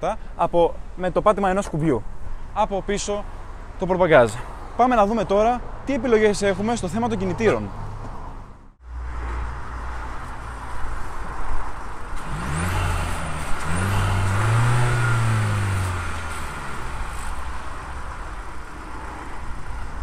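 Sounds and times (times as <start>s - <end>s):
car engine idling and revving: 6.4s - 20.0s.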